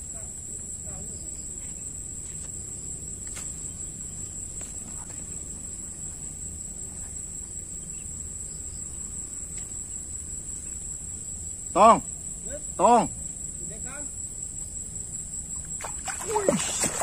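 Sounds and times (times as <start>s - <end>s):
insects chirring: 0.0s - 17.0s
faint ticks: 9.5s - 9.8s.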